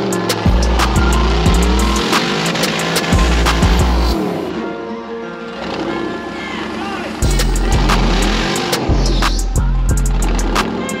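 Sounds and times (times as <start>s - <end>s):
music with heavy bass and drums: 0.0s - 4.5s, 7.2s - 11.0s.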